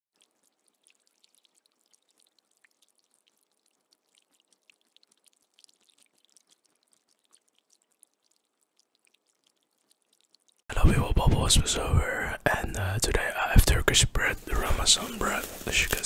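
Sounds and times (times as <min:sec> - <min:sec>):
rabbit chewing hay: 0:14.3 - 0:16.0.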